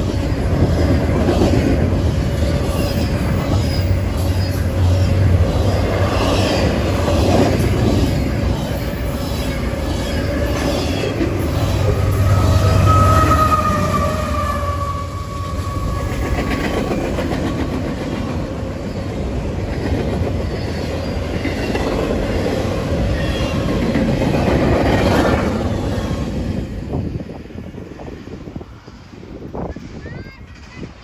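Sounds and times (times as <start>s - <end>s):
diesel locomotive whine: 0.0s - 31.0s.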